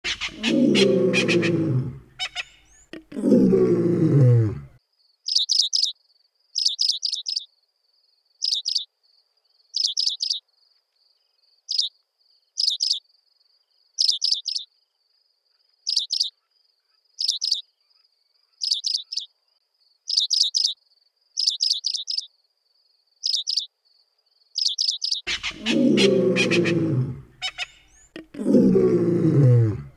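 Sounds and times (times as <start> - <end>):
bird chirping: 0.0 - 3.1, 5.2 - 6.0, 6.6 - 7.5, 8.4 - 8.9, 9.5 - 10.5, 11.2 - 13.0, 14.0 - 14.8, 15.8 - 16.5, 17.2 - 20.8, 21.4 - 22.4, 23.2 - 23.8, 24.4 - 29.9
deep loud roar: 0.4 - 2.1, 3.1 - 4.8, 25.5 - 27.4, 28.2 - 29.9.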